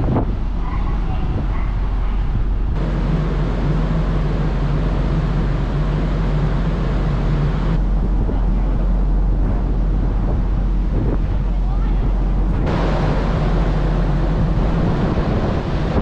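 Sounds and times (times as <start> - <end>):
wind on microphone: 0.0 - 6.1, 6.8 - 16.0
low machinery hum: 0.0 - 16.0.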